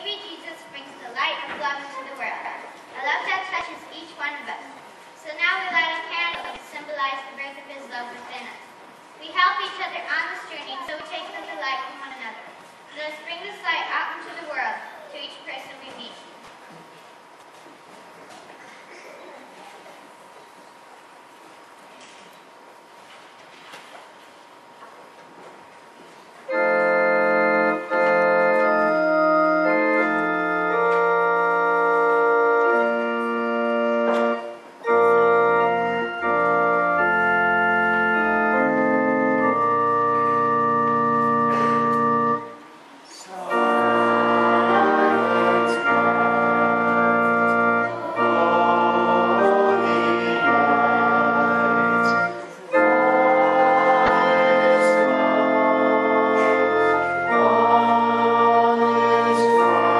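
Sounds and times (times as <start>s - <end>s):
organ playing chords: 26.4s - 59.9s
children singing: 43.5s - 59.9s.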